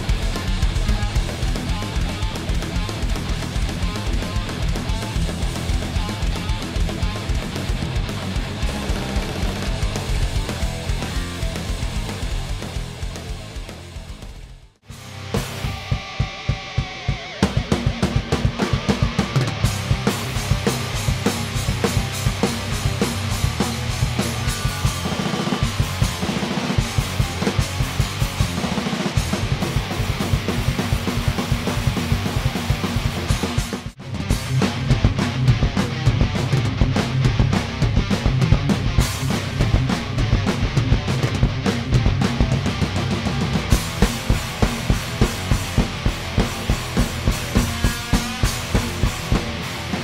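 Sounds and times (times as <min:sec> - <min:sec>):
band backing track: 0:00.0 - 0:50.0
heavy metal drumming: 0:00.0 - 0:50.0
heavy rock song: 0:00.0 - 0:50.0
snare and cymbals: 0:00.0 - 0:50.0
fast bass drum hits: 0:15.4 - 0:50.0.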